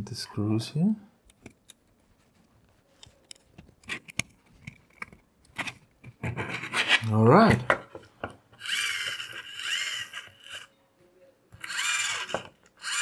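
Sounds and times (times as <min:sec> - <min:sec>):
plastic parts clicking and tapping: 0:03.0 - 0:06.6, 0:11.6 - 0:12.8.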